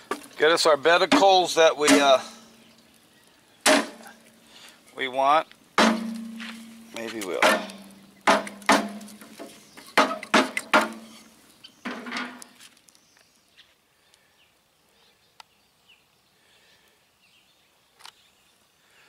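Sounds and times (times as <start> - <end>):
pops from burning wood: 0.0 - 13.5
bird chirps: 2.2 - 4.7, 6.2 - 10.2, 11.0 - 19.0
poker knocking on logs: 5.8 - 11.1.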